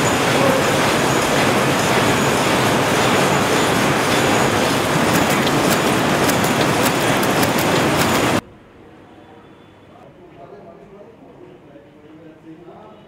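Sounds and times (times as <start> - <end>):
textile machinery clattering: 0.0 - 8.4
sharp mechanical clicks: 4.0 - 8.4.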